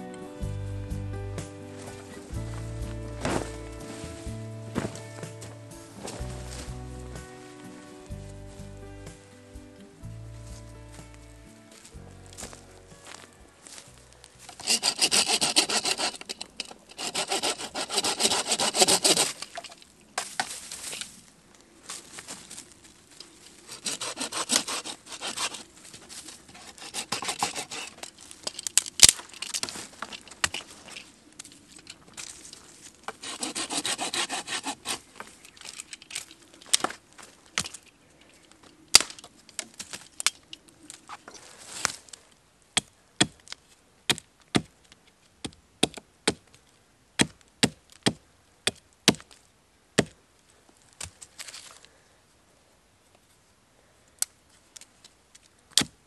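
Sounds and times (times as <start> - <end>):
hand saw cutting stick: 14.5 - 19.8, 23.7 - 25.7, 26.4 - 28.2, 33.1 - 35.1
hatchet striking wood: 42.8 - 44.7, 45.4 - 46.5, 47.2 - 49.3, 50.0 - 50.2, 55.7 - 56.0.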